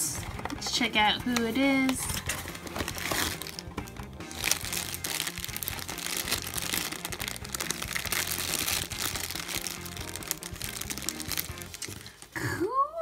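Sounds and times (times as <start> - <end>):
background music: 0.0 - 13.0
plastic bag crinkling: 2.0 - 12.4.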